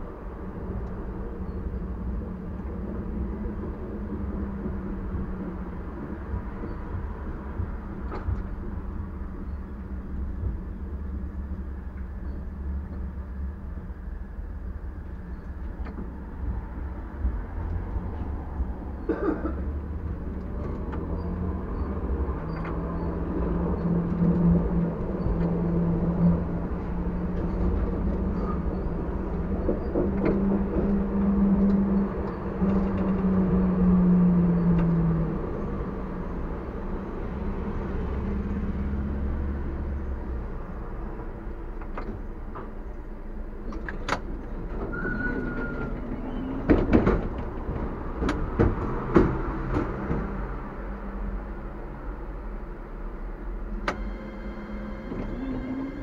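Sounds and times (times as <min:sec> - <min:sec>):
tram motor drone and rumble: 0:00.0 - 0:56.0
sharp clicks and knocks: 0:41.8 - 0:43.0, 0:43.6 - 0:44.9, 0:46.7 - 0:50.3.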